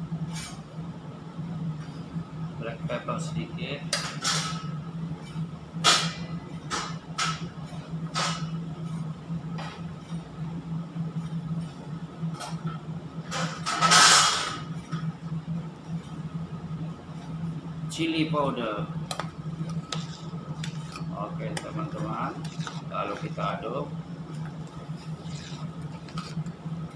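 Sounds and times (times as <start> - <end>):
low machinery hum: 0.0 - 26.9
sauce boiling in a pot: 14.6 - 26.9.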